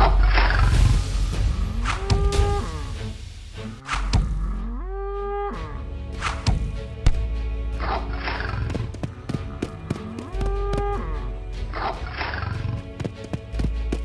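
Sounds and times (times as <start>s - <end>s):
background music: 0.0s - 14.0s
cow mooing: 4.4s - 5.9s.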